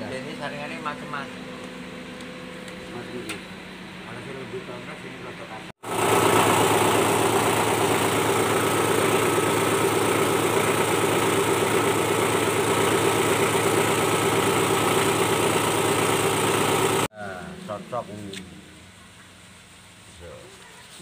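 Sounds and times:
grinding mill running: 0:05.8 - 0:17.1.

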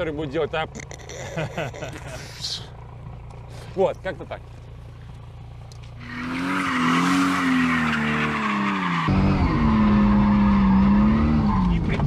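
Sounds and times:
car engine revving: 0:04.5 - 0:12.0
tyres squealing on asphalt: 0:06.0 - 0:11.9.

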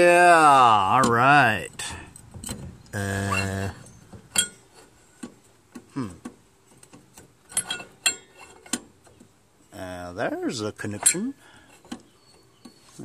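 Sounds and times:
person humming: 0:03.0 - 0:03.8, 0:05.9 - 0:06.3
metal parts clinking: 0:07.5 - 0:08.8.

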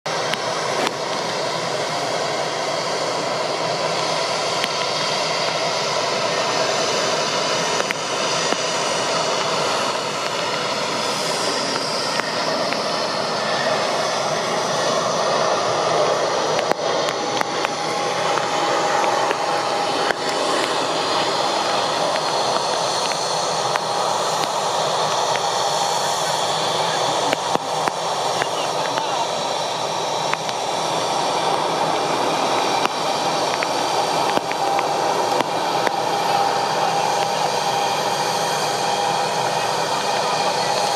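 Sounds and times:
jet engines rushing: 0:00.1 - 0:40.9
faint high whine: 0:00.2 - 0:40.9.

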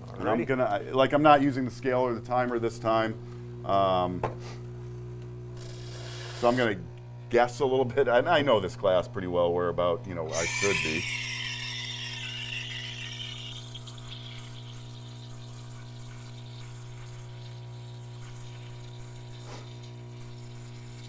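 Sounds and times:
espresso machine pump humming: 0:00.0 - 0:08.0, 0:10.1 - 0:21.0
steam wand hissing: 0:10.3 - 0:21.0.

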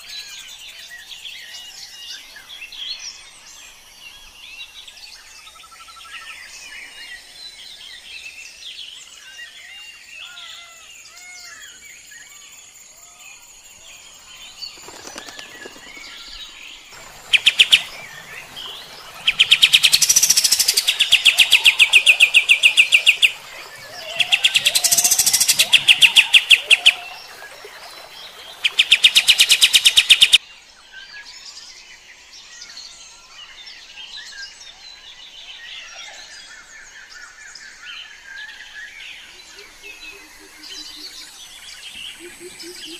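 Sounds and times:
songbird chirps: 0:00.0 - 0:42.9
bird's rapid repeated song: 0:14.0 - 0:30.4.

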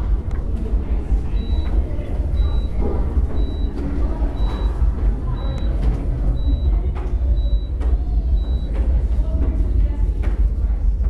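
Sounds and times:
low rumble: 0:00.0 - 0:11.0
high electronic beep: 0:01.3 - 0:08.7.

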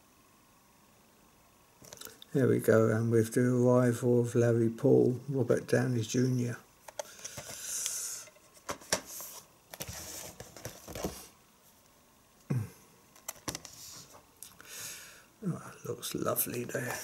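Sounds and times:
plastic cases clicking together: 0:13.2 - 0:13.8.

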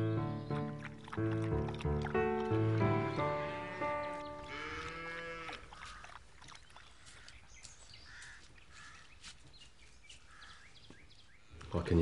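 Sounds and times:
cow mooing: 0:03.3 - 0:05.7.

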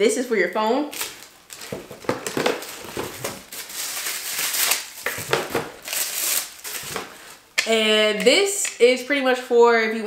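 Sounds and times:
cardboard and plastic rustling: 0:00.9 - 0:07.4.

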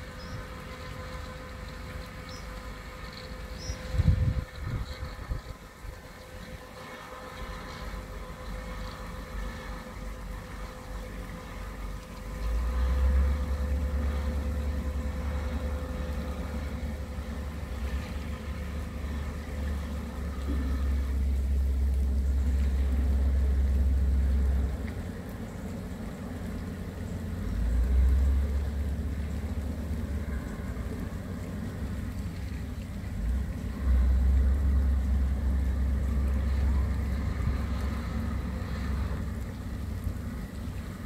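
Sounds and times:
faint engine drone: 0:00.0 - 0:41.0
wind buffeting microphone: 0:03.6 - 0:06.7.

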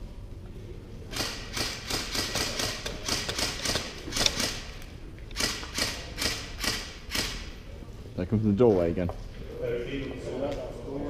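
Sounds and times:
airsoft rifle shots: 0:01.1 - 0:07.6.

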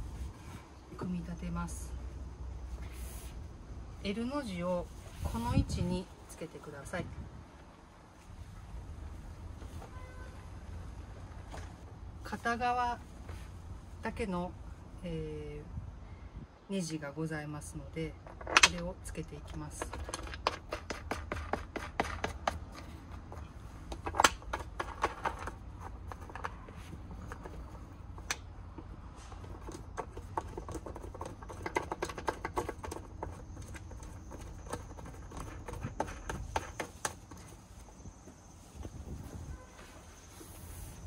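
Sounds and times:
clicks and taps handling wood board: 0:19.7 - 0:37.5.

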